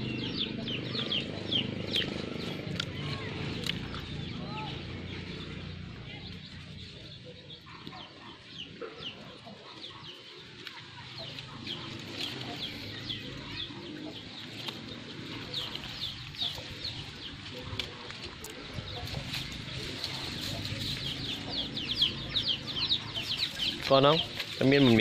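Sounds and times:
birds chirping: 0.0 - 25.0
low background murmur: 0.0 - 25.0.

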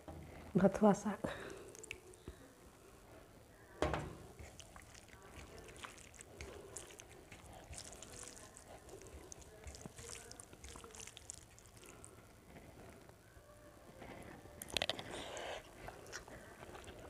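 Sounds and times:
fingers mixing food on plate: 4.2 - 13.1.

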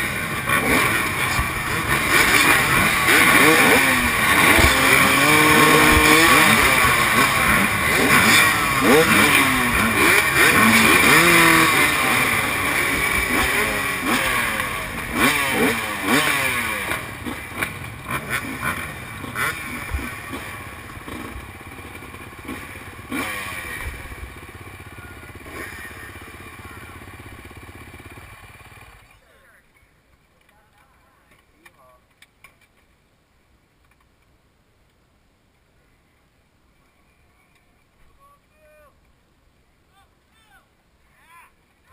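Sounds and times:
dirt bike engines revving: 0.0 - 29.4.

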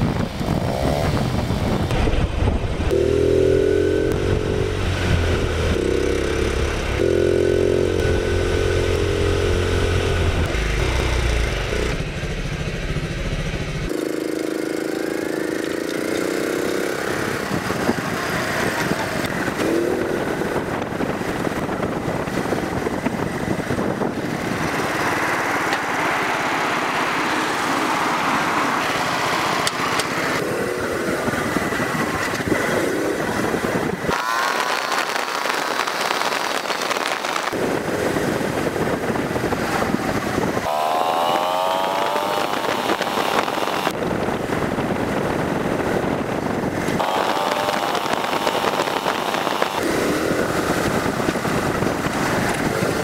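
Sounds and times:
small motorcycle engine running: 0.0 - 2.0, 2.8 - 26.0, 28.8 - 53.0
wind and road noise: 0.0 - 53.0.

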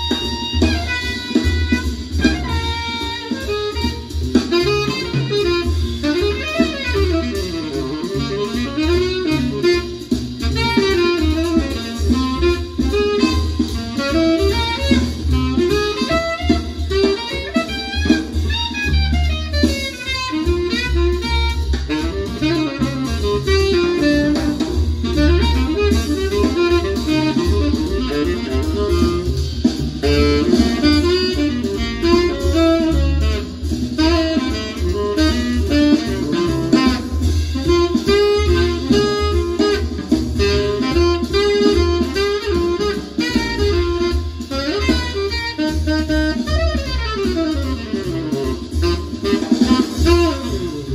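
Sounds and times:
jazz over loudspeakers: 0.0 - 50.9.

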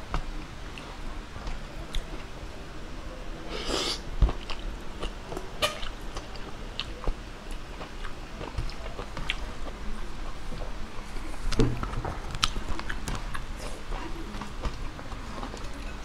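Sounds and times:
short slurp: 3.5 - 4.0
wet chewing: 3.6 - 9.8, 11.4 - 15.8.

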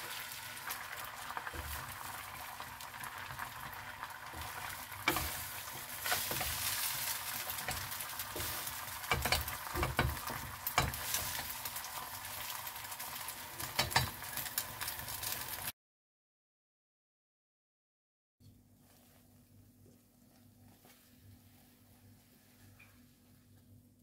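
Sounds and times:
eggs sizzling in frying pan: 0.0 - 15.7
wooden spatula scraping pan: 3.3 - 11.5.

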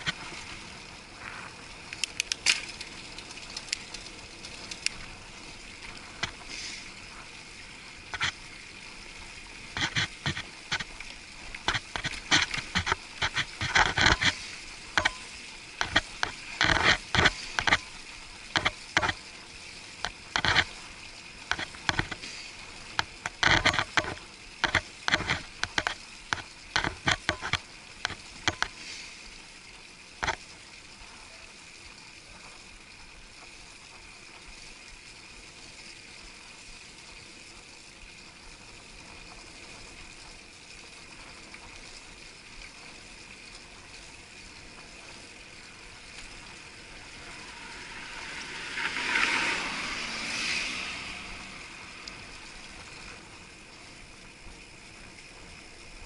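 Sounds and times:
wind and tyres hissing: 0.0 - 56.0
sharp clicks and knocks: 9.7 - 15.2, 15.8 - 17.8, 18.5 - 19.2, 21.5 - 22.2, 22.9 - 28.7.

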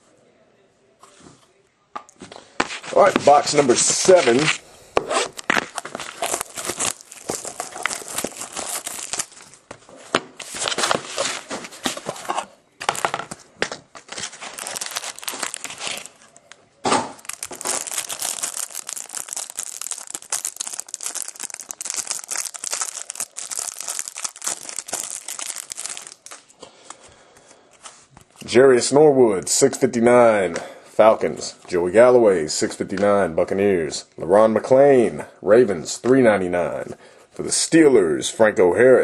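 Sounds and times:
rustling of cards and box: 2.6 - 16.5, 17.2 - 27.0
wrapping crinkling and tearing: 5.2 - 9.7, 13.9 - 16.6, 17.2 - 26.6.

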